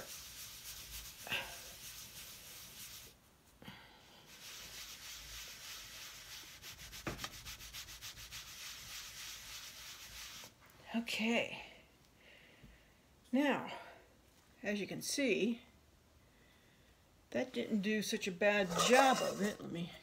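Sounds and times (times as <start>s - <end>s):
hand rubbing leather: 0.0s - 3.2s.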